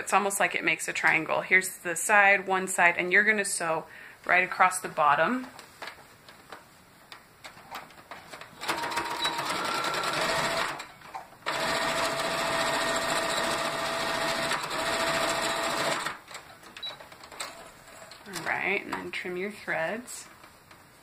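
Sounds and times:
sewing machine stitching: 8.6s - 10.8s, 11.4s - 16.3s.

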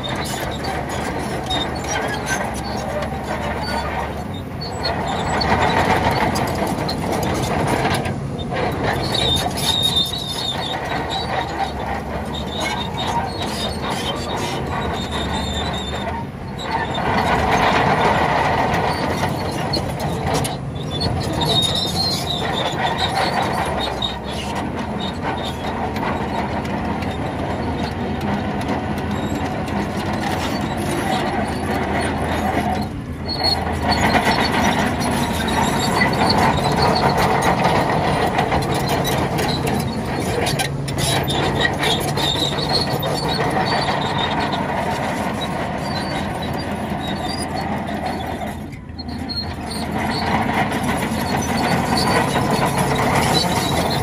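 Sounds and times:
bulldozer diesel engine running: 0.0s - 54.0s
steel tracks squealing and clanking: 0.0s - 54.0s.

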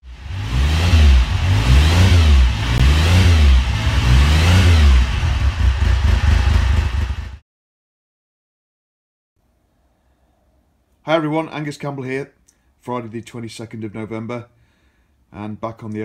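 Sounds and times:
motorcycle engine revving: 0.0s - 7.4s.

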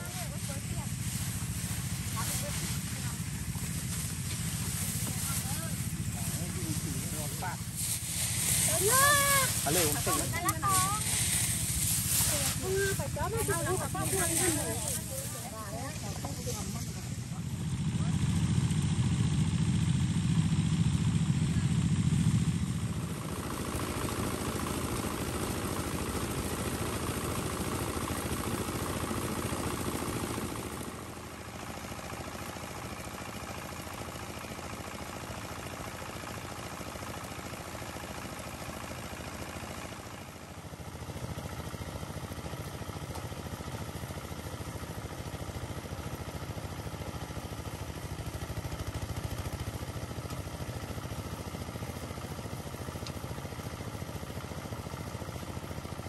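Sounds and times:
grain and straw rattling: 0.0s - 17.0s
small engine humming: 0.0s - 56.0s.

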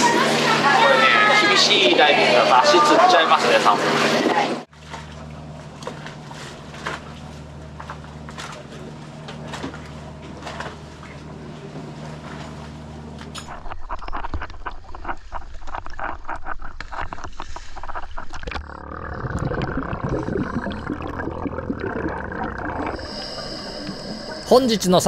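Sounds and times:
boat engine humming: 0.0s - 25.0s
muffled underwater bubbling: 13.5s - 25.0s.

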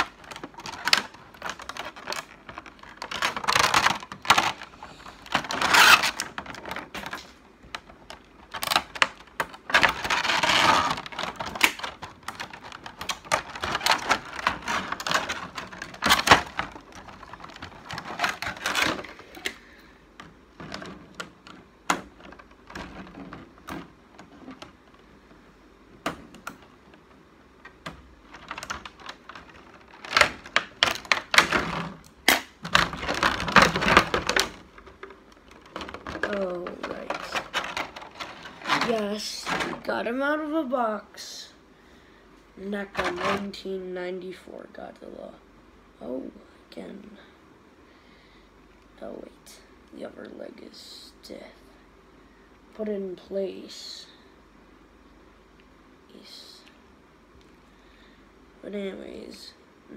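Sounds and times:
crinkling plastic: 0.0s - 40.6s, 42.8s - 43.6s.

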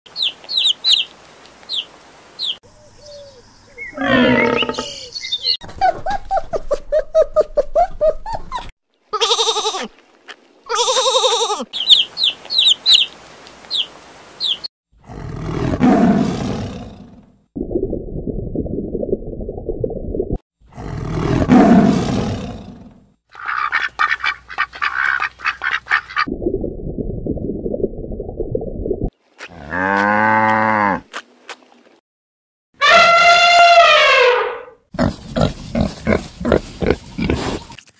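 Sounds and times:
chicks peeping: 0.2s - 1.1s, 11.8s - 13.1s
long drawn animal calls: 3.2s - 5.1s
loud animal roars: 4.0s - 5.0s, 15.0s - 17.2s, 20.7s - 22.9s.

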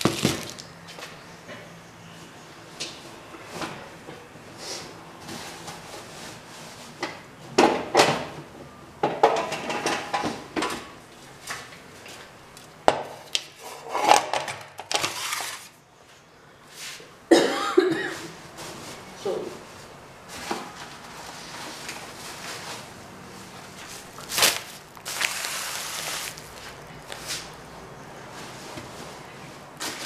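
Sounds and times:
packets rustling: 23.7s - 27.7s.

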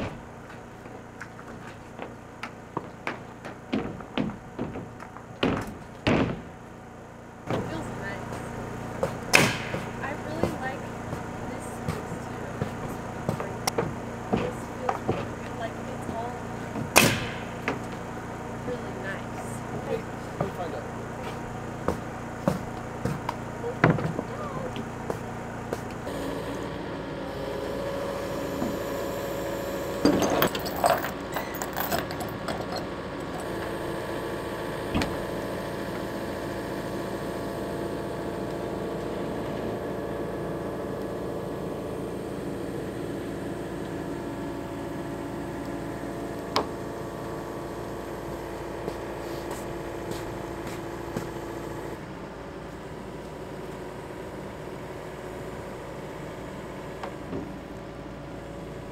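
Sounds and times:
knocks and clatter: 0.0s - 18.2s
excavator diesel engine running: 0.0s - 58.9s.

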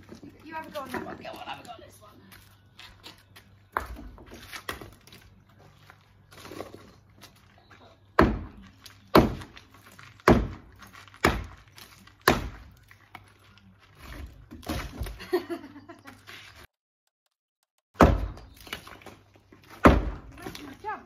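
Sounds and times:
sledgehammer striking brick wall: 8.2s - 9.6s, 10.2s - 11.6s, 12.2s - 12.7s, 18.0s - 19.0s, 19.7s - 20.6s.

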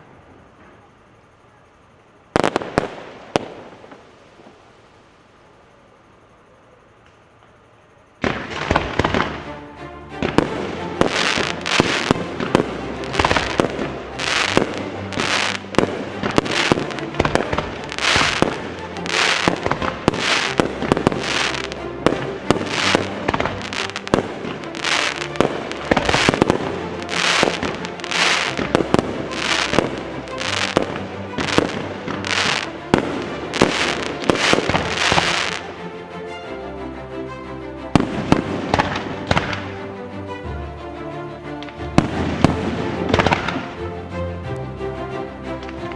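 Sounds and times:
fireworks bursting and crackling: 2.3s - 4.8s, 8.2s - 35.9s, 37.9s - 39.8s, 41.6s - 43.9s.

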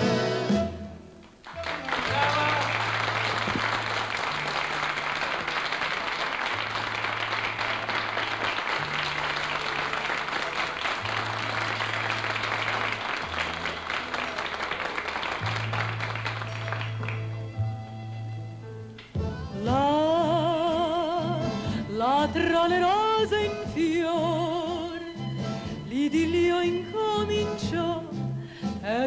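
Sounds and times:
audience applauding: 1.3s - 17.5s.

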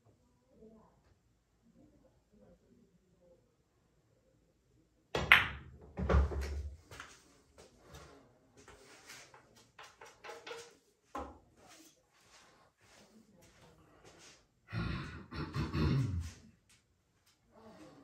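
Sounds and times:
pool balls knocking: 5.2s - 6.7s.

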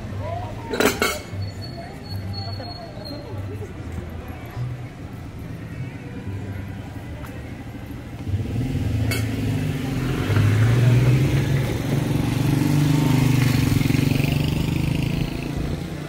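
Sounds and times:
motorcycle engine passing: 8.3s - 16.0s.

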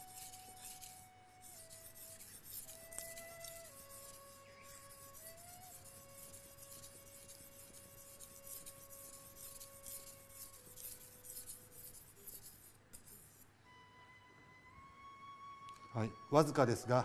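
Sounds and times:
knife scraping on whetstone: 0.0s - 13.4s.

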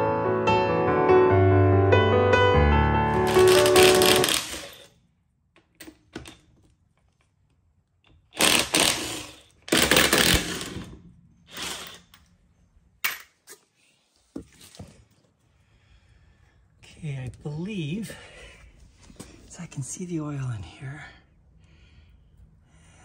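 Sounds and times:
impact wrench spinning lug nuts: 3.2s - 4.9s, 8.1s - 12.3s.

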